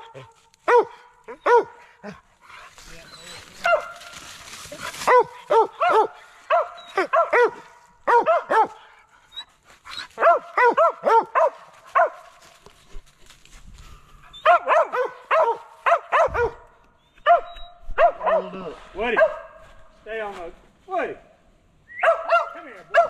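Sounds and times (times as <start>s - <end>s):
dog barking: 0.0s - 2.2s, 3.6s - 4.1s, 5.0s - 8.9s, 10.2s - 12.3s, 14.4s - 19.6s, 22.0s - 23.0s.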